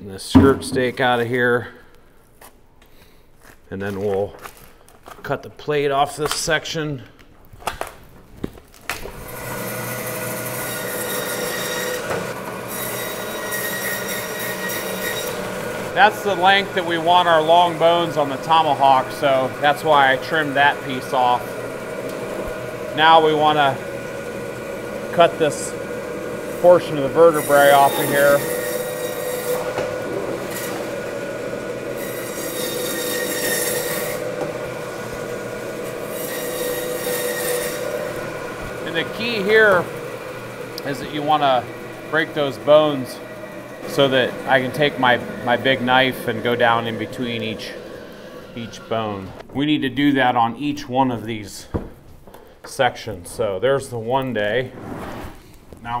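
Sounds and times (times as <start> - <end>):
bandsaw whine cutting meat: 8.9 - 49.5
saw blade cutting bone: 9.6 - 15.7, 27.1 - 31.0, 32.0 - 34.5.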